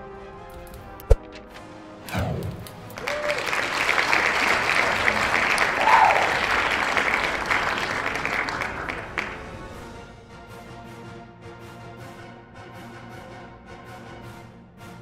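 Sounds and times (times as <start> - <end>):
crowd applauding: 2.4 - 10.0.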